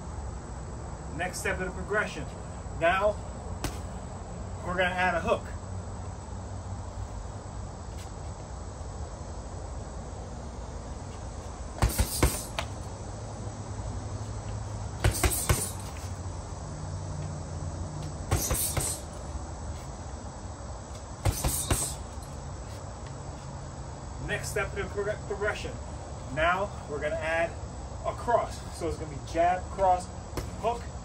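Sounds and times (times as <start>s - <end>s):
punches hitting heavy bag: 3.6s - 3.9s, 11.8s - 12.8s, 15.0s - 16.0s, 18.3s - 19.2s, 21.2s - 22.2s, 30.4s - 30.8s.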